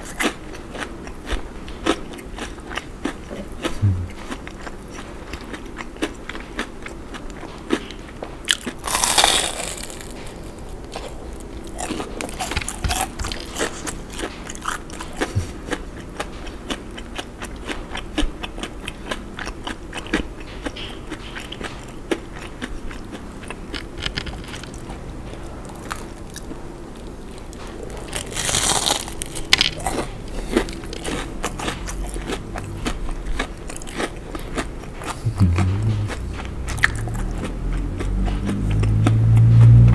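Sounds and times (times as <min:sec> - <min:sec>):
crunchy chewing: 0:00.0 - 0:39.9
wet mouth sounds: 0:00.2 - 0:07.2, 0:14.6 - 0:15.8, 0:29.8 - 0:39.9.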